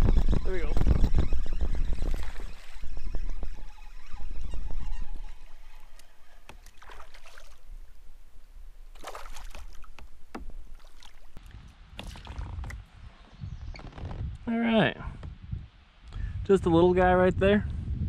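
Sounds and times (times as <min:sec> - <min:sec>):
tackle knocking against hull: 0:09.9 - 0:10.8.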